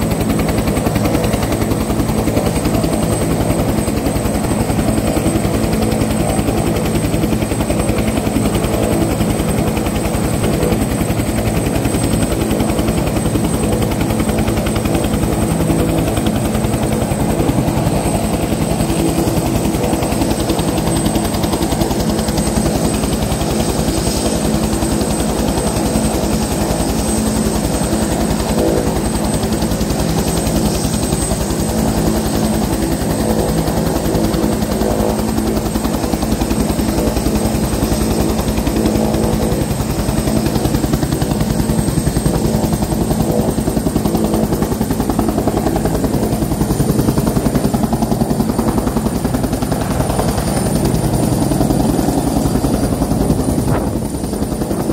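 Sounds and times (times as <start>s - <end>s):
helicopter rotor chopping: 0.0s - 54.9s
high turbine whine: 0.0s - 54.9s.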